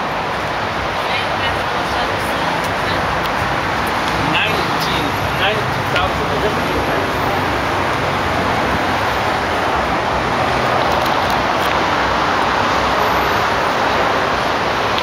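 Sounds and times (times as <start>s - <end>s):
road traffic noise: 0.0s - 15.0s.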